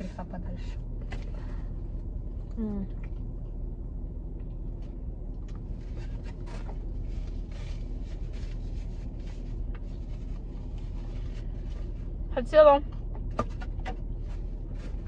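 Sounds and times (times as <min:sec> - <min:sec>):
low car rumble: 0:00.0 - 0:15.0.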